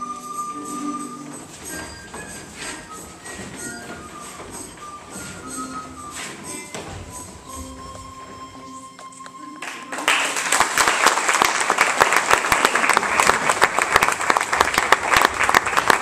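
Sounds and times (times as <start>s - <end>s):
dance music: 0.0s - 10.0s
audience applause: 9.6s - 16.0s.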